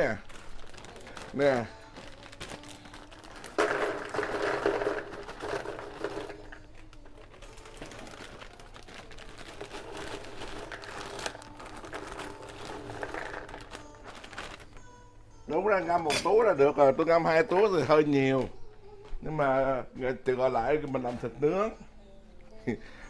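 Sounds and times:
plastic bags crinkling: 0:00.0 - 0:14.9.

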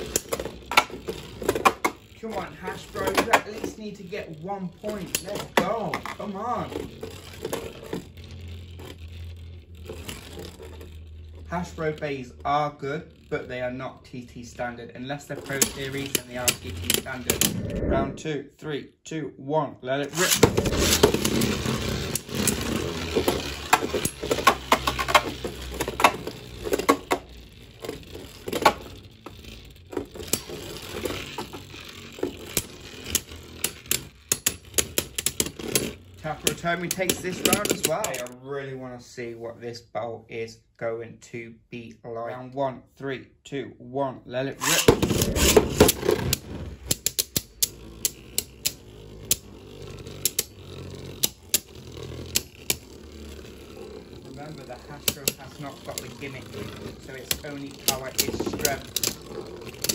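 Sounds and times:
spinning tops whirring: 0:00.0 - 0:18.2, 0:20.1 - 0:38.4, 0:44.6 - 0:59.9
spinning tops clacking: 0:44.6 - 0:59.9.

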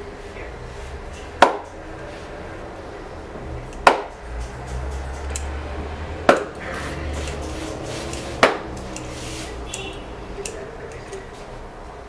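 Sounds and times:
scissors snipping: 0:03.7 - 0:05.6, 0:06.3 - 0:11.3.

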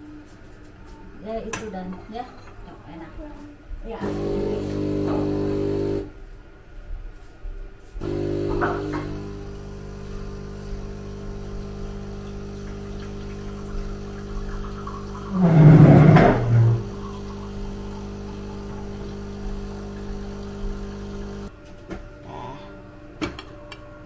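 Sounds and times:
espresso machine humming: 0:04.0 - 0:06.2, 0:08.0 - 0:21.5.

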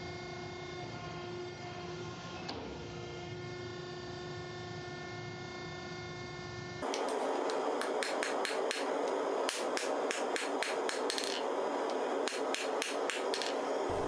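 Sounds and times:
steady rushing noise: 0:06.8 - 0:14.0.

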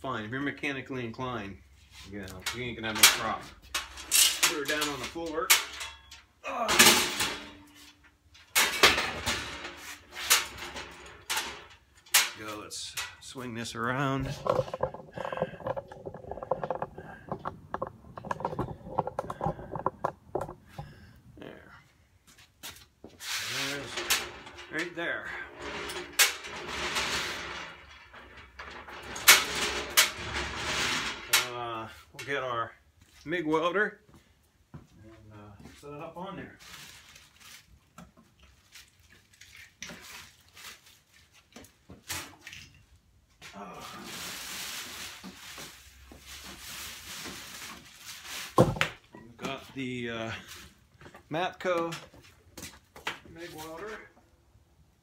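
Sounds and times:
metal cart clattering and knocking: 0:02.5 - 0:12.4, 0:14.2 - 0:20.6, 0:23.9 - 0:25.0, 0:25.6 - 0:31.5
objects knocking and clinking: 0:14.2 - 0:20.9.

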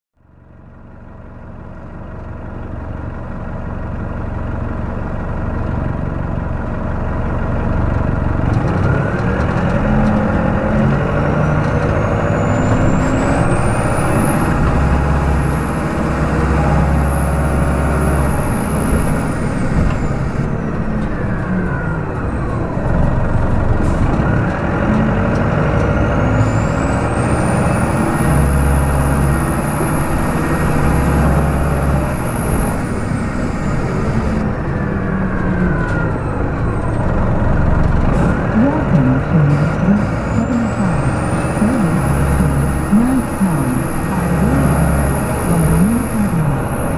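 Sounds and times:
bus diesel engine: 0:00.2 - 0:46.9
high engine whine: 0:00.3 - 0:46.9.

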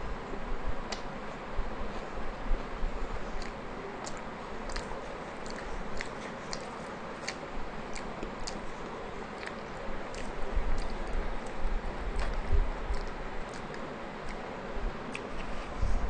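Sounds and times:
wet mouth clicks: 0:03.4 - 0:11.6, 0:12.2 - 0:14.4, 0:15.1 - 0:15.4
person chewing: 0:03.4 - 0:14.4, 0:15.1 - 0:15.4.

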